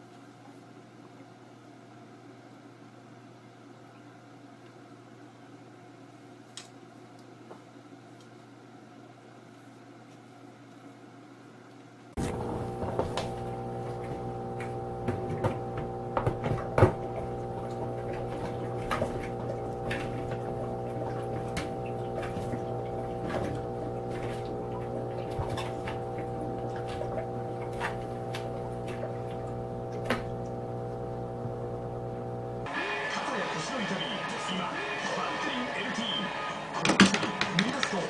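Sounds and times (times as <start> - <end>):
humidifier fan humming: 0.0 - 38.0.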